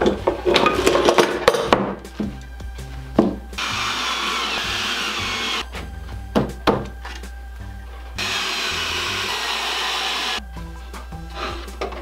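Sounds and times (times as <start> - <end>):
background music: 0.0 - 12.0
cordless drill driving screws: 3.6 - 5.6, 8.2 - 10.4.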